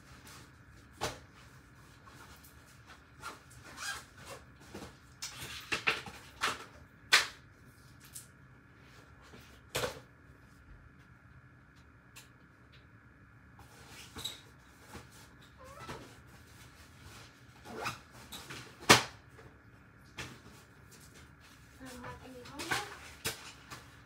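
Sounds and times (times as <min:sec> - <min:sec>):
rustles and clicks of rummaging: 0:13.6 - 0:24.0.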